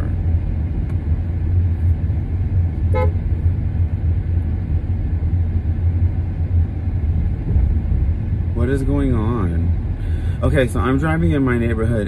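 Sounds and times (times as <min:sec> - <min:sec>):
car driving low rumble: 0:00.0 - 0:12.0.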